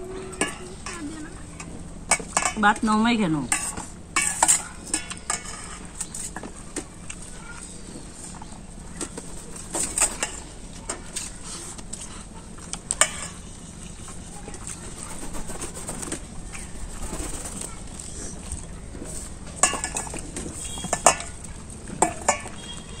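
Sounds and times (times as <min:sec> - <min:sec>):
spoon and plates clinking: 0:19.6 - 0:21.4.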